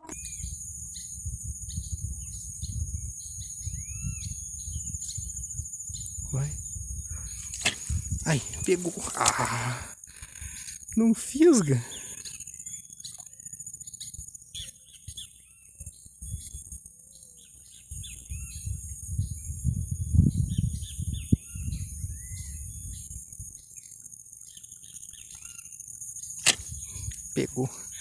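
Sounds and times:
birds chirping: 0:00.0 - 0:28.0
high-pitched insect drone: 0:00.0 - 0:28.0
low rumble on the microphone: 0:00.2 - 0:10.6, 0:17.6 - 0:23.6.

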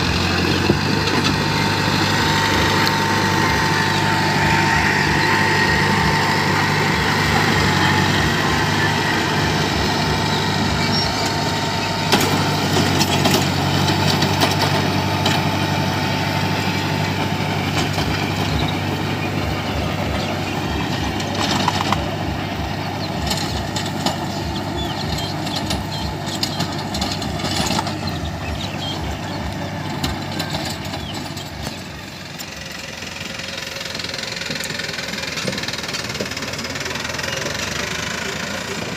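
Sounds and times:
high steady whine: 0:00.0 - 0:12.2
tractor diesel engine under load: 0:00.0 - 0:38.9.

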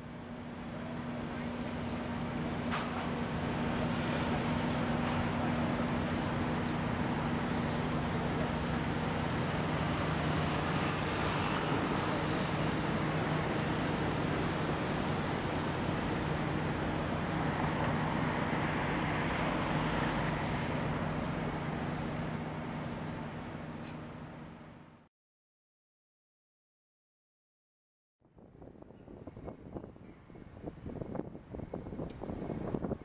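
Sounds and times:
vehicles passing by: 0:00.1 - 0:24.5.

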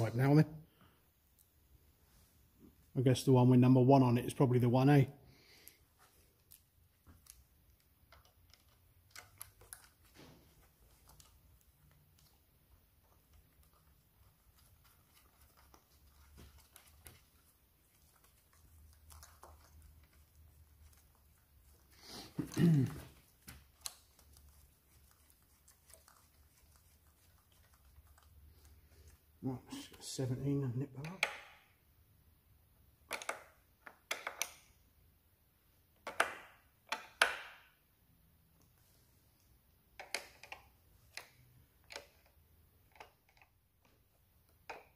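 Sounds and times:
clicks and taps of hands fitting pipe: 0:06.4 - 0:10.0, 0:40.0 - 0:44.9.

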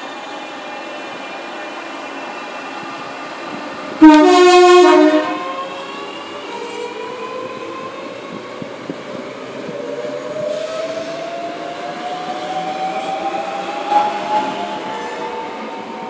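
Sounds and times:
train traction motor whine: 0:00.0 - 0:07.5.

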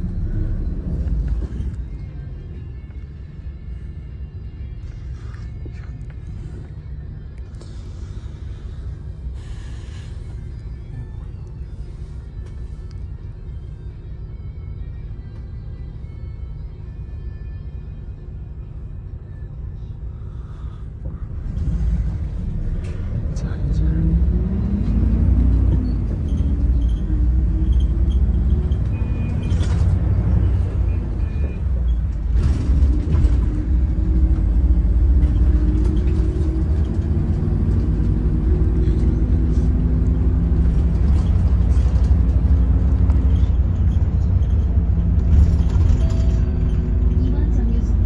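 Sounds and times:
bus diesel engine rumbling: 0:00.0 - 0:48.0.

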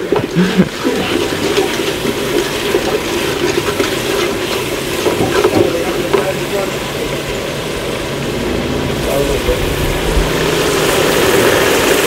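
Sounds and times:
rice sizzling in hot oil: 0:00.0 - 0:12.0.

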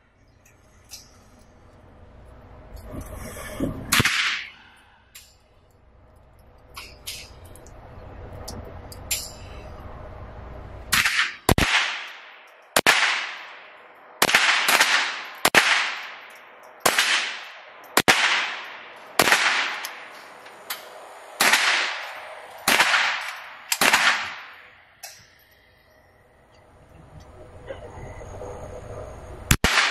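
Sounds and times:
gunshots echoing indoors: 0:10.9 - 0:20.2, 0:21.4 - 0:24.8, 0:29.5 - 0:29.9.

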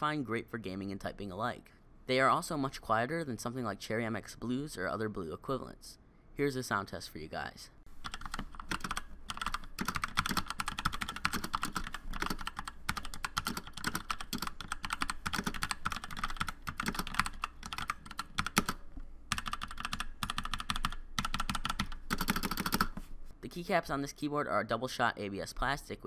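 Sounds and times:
fast mechanical keyboard typing: 0:08.0 - 0:23.0.

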